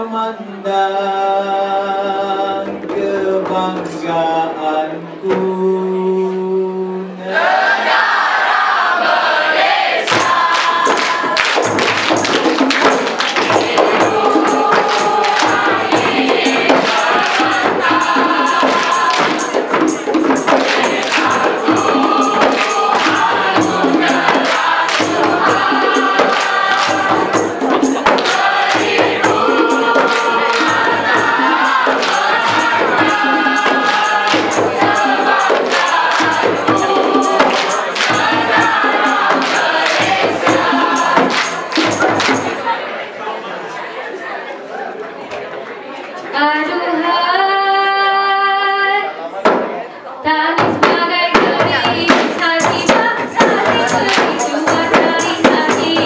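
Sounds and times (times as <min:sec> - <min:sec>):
chorus singing: 0:00.0 - 0:56.0
rhythmic clapping: 0:07.7 - 0:42.9, 0:50.5 - 0:56.0
hand drums: 0:10.1 - 0:42.7, 0:50.5 - 0:56.0.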